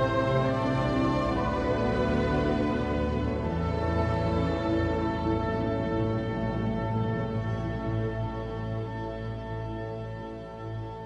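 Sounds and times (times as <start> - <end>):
slow sustained orchestral chords: 0.0 - 11.0.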